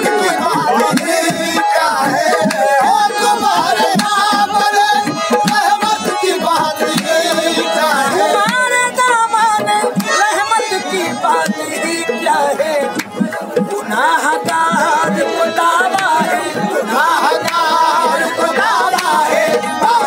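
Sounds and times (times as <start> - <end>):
person singing: 0.0 - 12.9
harmonium: 0.0 - 20.0
tabla drumming: 0.0 - 20.0.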